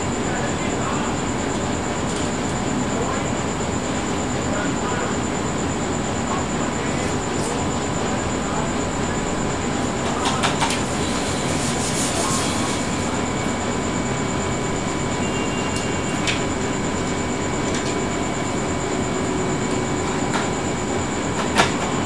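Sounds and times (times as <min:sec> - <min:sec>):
thin high whine: 0:04.5 - 0:19.5.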